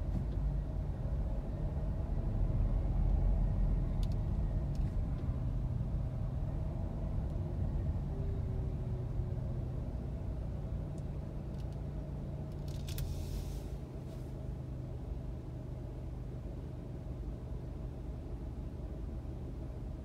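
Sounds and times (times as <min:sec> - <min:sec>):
car engine idling rumble: 0:00.0 - 0:20.0
short rattling hiss: 0:12.8 - 0:13.7.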